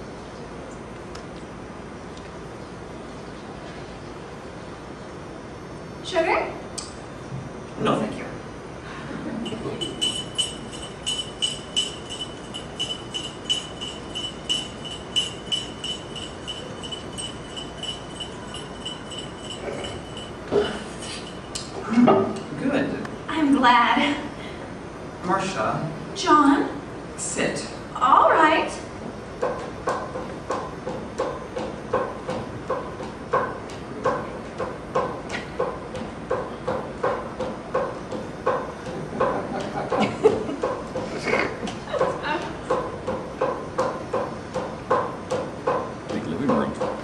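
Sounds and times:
spoon clinking in coffee cup: 0:09.4 - 0:21.6.

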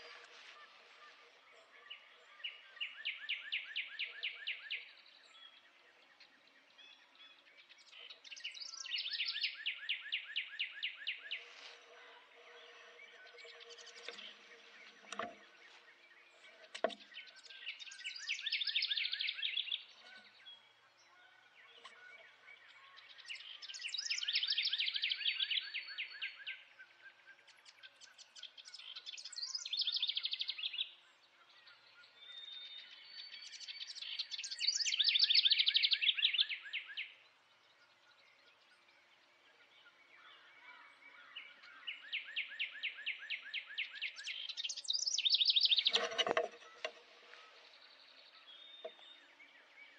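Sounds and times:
songbird trilled song: 0:01.5 - 0:49.9.

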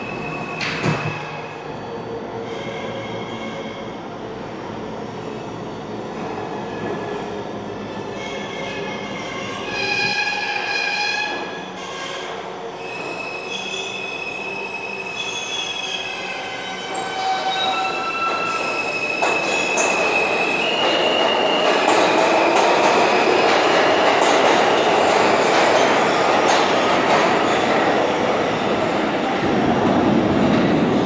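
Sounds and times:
train wheels rumbling on rail: 0:15.5 - 0:31.0.

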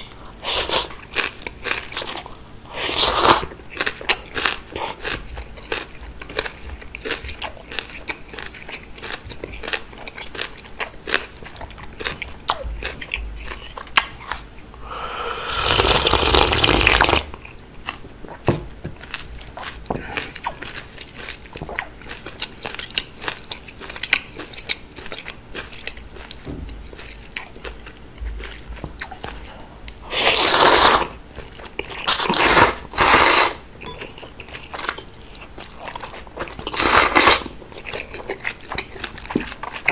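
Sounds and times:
chewing noodles: 0:00.0 - 0:14.4, 0:15.6 - 0:39.9
slurping noodles: 0:15.2 - 0:17.3, 0:30.1 - 0:31.1, 0:32.1 - 0:33.6.

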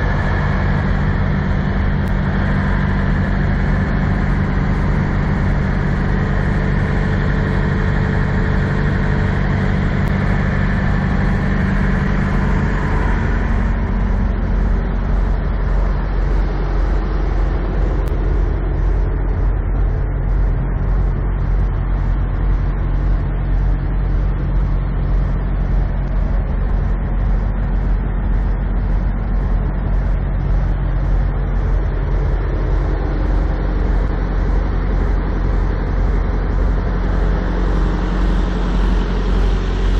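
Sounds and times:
diesel truck engines idling: 0:00.0 - 0:39.9.

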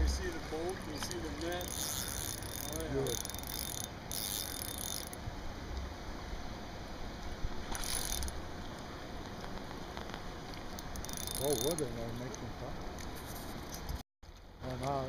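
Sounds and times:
fishing reel clicking and buzzing: 0:01.6 - 0:05.2, 0:07.7 - 0:08.4, 0:10.8 - 0:12.0.

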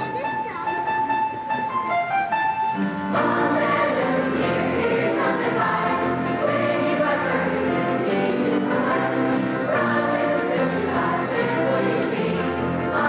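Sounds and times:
children's choir singing: 0:03.1 - 0:13.0.

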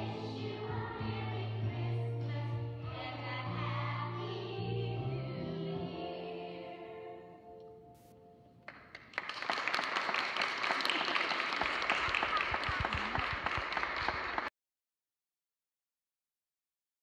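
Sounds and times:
children singing: 0:00.0 - 0:07.4
audience clapping: 0:08.6 - 0:14.5.

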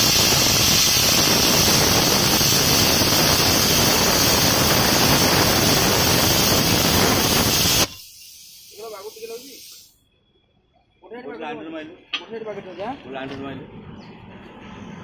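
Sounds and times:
plasma cutter hissing: 0:00.0 - 0:10.0.

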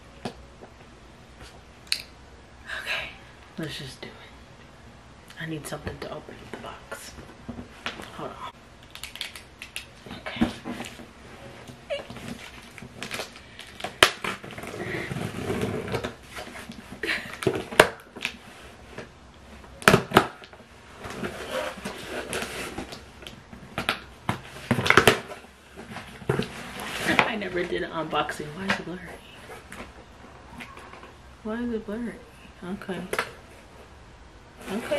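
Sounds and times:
packing tape scraping and tearing: 0:11.6 - 0:18.4, 0:19.8 - 0:27.3.

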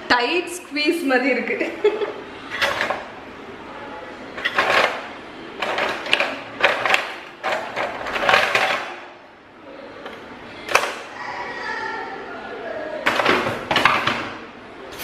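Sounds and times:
metal utensils clattering: 0:02.4 - 0:03.1, 0:04.4 - 0:09.0.

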